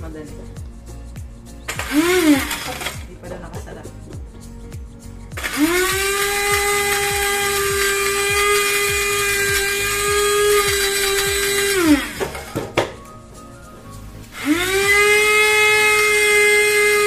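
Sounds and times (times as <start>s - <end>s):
electric grinder motor whining: 1.7s - 3.1s, 5.4s - 12.7s, 14.4s - 17.0s.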